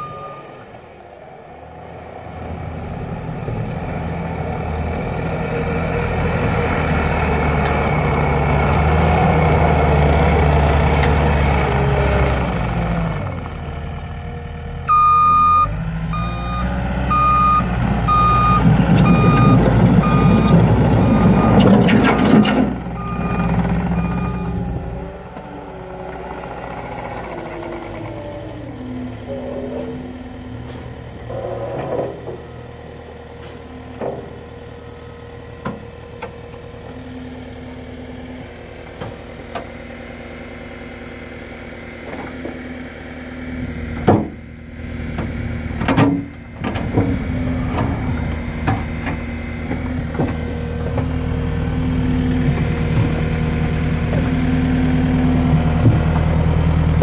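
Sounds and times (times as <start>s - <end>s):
track noise: 0.0s - 32.8s
diesel engine running: 0.0s - 57.0s
backup alarm beeping: 14.9s - 21.7s, 23.0s - 24.6s.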